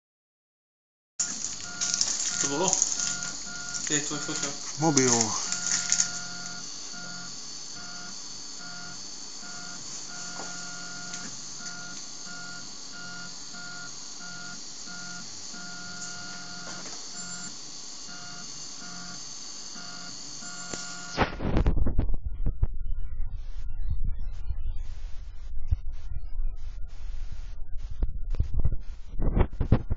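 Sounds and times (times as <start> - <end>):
steady hiss: 1.2 - 8.4
stepper motors whining: 1.2 - 21.3.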